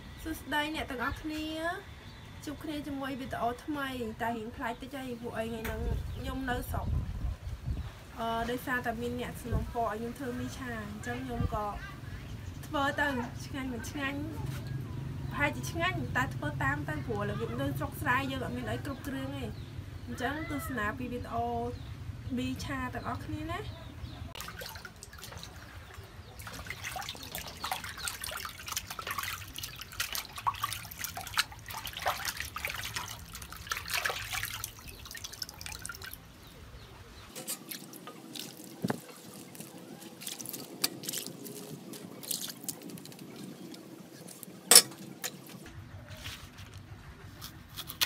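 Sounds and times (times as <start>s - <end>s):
water boiling in a pot: 24.4s - 36.4s, 37.2s - 45.7s.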